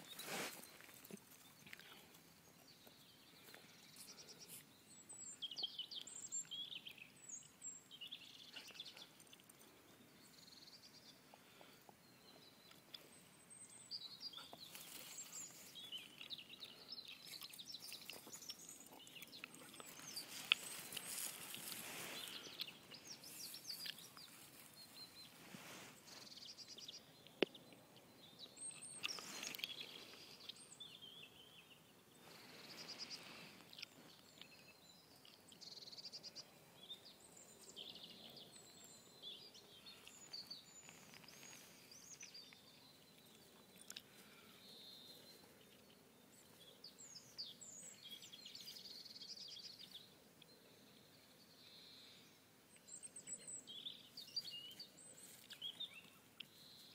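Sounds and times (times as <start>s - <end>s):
soft rustling: 0.0s - 2.3s, 17.2s - 26.4s
small birds chirping: 0.0s - 56.9s.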